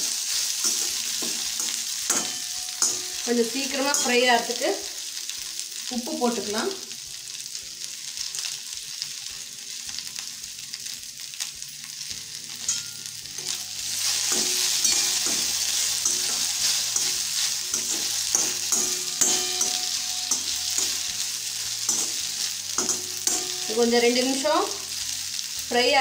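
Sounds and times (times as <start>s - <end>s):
okra sizzling in hot oil: 0.0s - 26.0s
metal spatula scraping pan: 0.6s - 4.3s, 12.7s - 24.4s.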